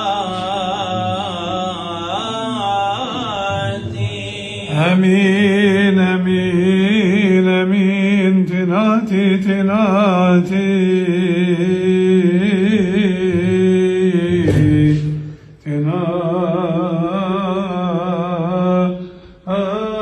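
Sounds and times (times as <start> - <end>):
man chanting: 0.0 - 20.0.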